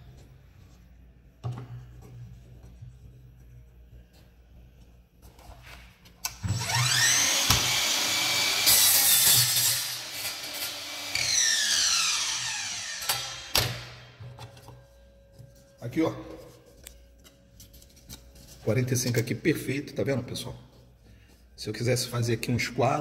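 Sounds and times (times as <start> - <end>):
miter saw motor whine: 6.4 - 8.9, 10.0 - 13.6
saw blade cutting trim: 6.4 - 13.9.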